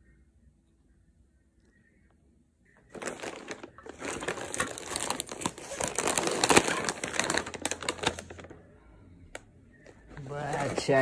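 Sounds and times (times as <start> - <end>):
plastic chips packet crinkling: 2.9 - 8.6.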